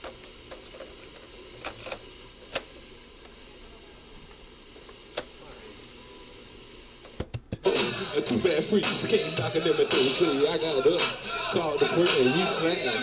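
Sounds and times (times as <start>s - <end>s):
cassette deck plastic clicks: 0.0s - 3.4s, 4.8s - 5.3s, 7.0s - 7.6s.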